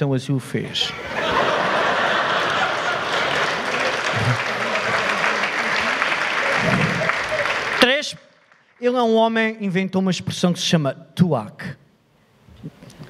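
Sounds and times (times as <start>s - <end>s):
audience laughter: 0.9s - 7.8s
audience applauding: 1.2s - 9.0s.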